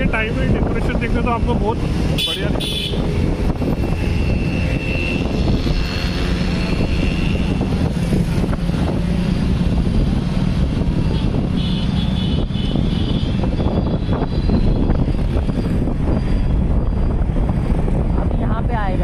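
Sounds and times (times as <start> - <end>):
vehicle rumbling along road: 0.0 - 19.0.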